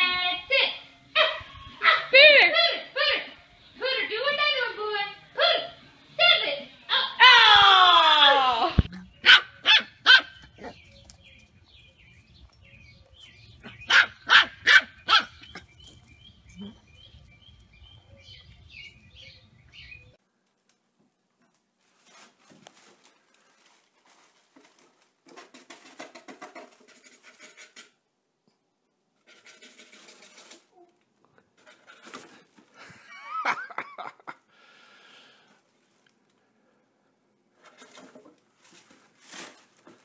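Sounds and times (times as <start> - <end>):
puppy barking: 1.2 - 2.2, 9.0 - 10.8, 13.6 - 15.6
rustling and scratching: 20.4 - 28.0, 29.2 - 32.9, 37.5 - 40.0.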